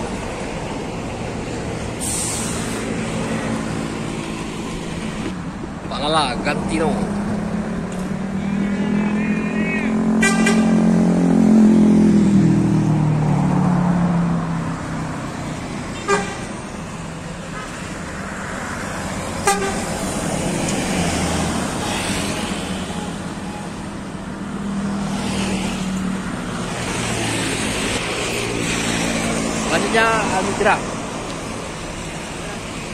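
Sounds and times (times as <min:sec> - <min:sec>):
steady traffic noise: 0:00.0 - 0:32.9
vehicle engine running loudly: 0:06.6 - 0:14.6
bus horn toots: 0:10.1 - 0:11.0, 0:15.9 - 0:16.6, 0:19.4 - 0:20.0.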